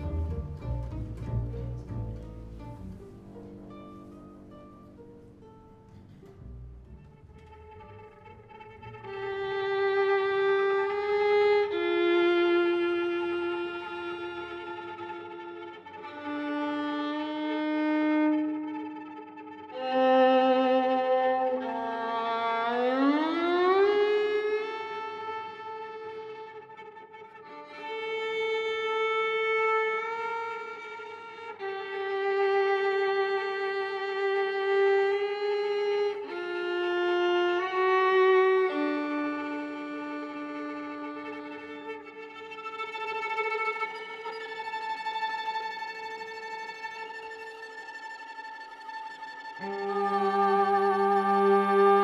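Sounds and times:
fiddle playing slow melody: 0:00.0 - 0:52.0.

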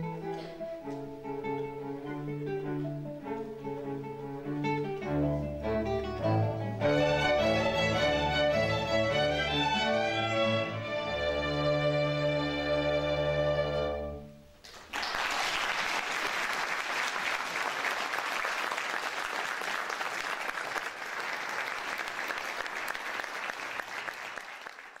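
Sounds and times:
string orchestra and guitar chord: 0:00.0 - 0:14.3
audience applause: 0:14.6 - 0:25.0.

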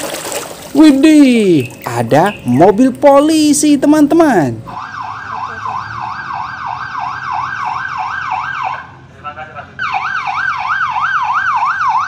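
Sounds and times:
police siren yelping: 0:04.2 - 0:09.0, 0:09.8 - 0:12.0.

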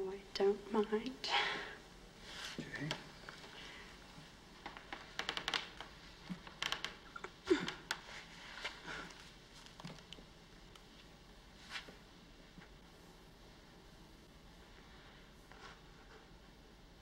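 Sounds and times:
rustling and clicking: 0:04.6 - 0:11.1.

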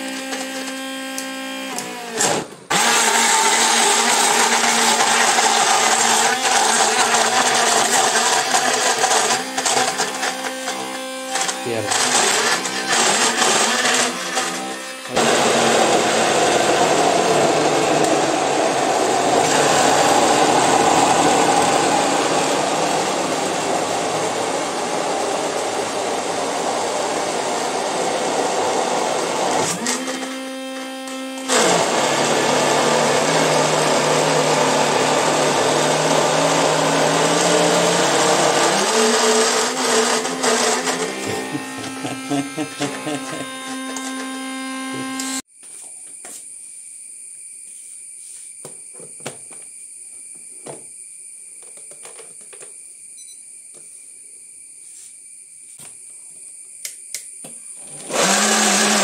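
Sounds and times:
mixer grinder running: 0:00.0 - 0:45.5, 0:57.8 - 0:59.0.

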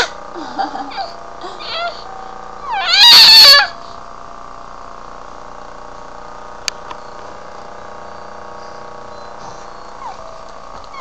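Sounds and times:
mechanical hum: 0:00.0 - 0:11.0
baby squealing: 0:00.9 - 0:02.0, 0:02.6 - 0:03.8.

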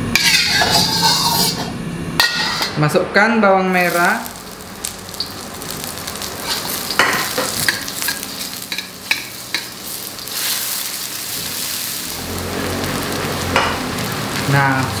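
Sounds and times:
metal spatula scraping wok: 0:00.0 - 0:02.8, 0:06.4 - 0:13.8
shallots sizzling in hot oil: 0:00.1 - 0:01.6, 0:03.7 - 0:15.0.

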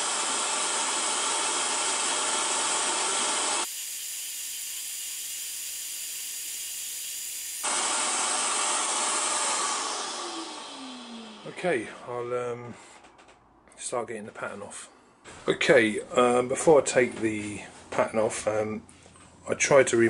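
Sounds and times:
scroll saw cutting wood: 0:00.0 - 0:12.0.

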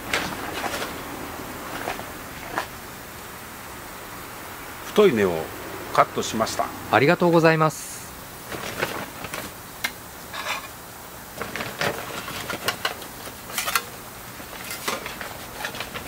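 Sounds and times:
rustling: 0:00.0 - 0:02.8, 0:08.4 - 0:09.6
rummaging in plastic bag: 0:08.5 - 0:09.6, 0:11.4 - 0:16.0.

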